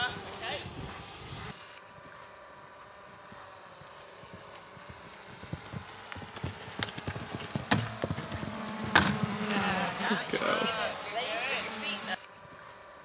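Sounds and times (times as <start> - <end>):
hooves knocking on ground: 3.0 - 12.6.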